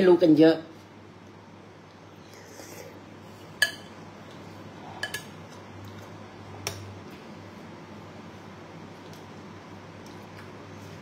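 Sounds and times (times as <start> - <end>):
spoon clinking on ceramic bowl: 3.6 - 3.9.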